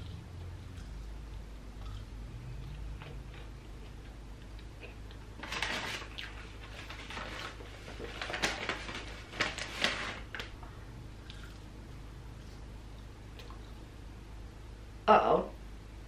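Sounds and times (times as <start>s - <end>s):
eating noises: 0.0s - 5.3s, 11.2s - 11.7s
paper bags rustling: 5.4s - 10.6s.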